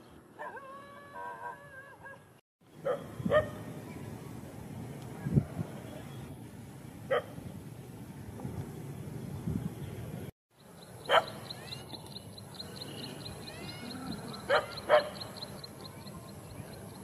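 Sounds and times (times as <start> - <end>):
dog barking: 2.8 - 3.5, 7.1 - 7.3, 11.1 - 11.4, 14.5 - 15.2.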